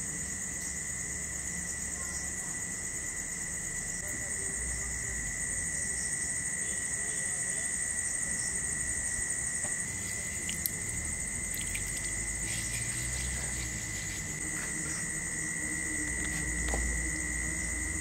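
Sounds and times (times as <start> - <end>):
insects calling: 0.0 - 18.0
water splashing in a bowl: 9.6 - 14.4.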